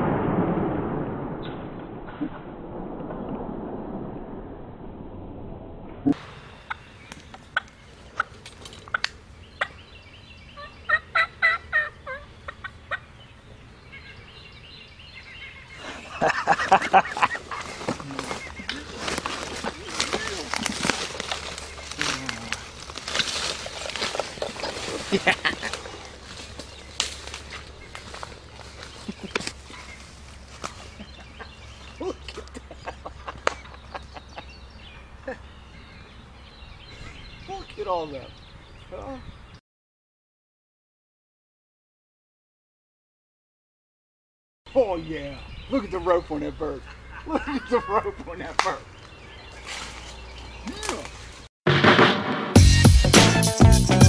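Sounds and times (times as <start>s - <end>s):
turkeys clucking: 6.6s - 9.8s, 10.6s - 13.1s
turkey gobbling: 10.6s - 13.1s.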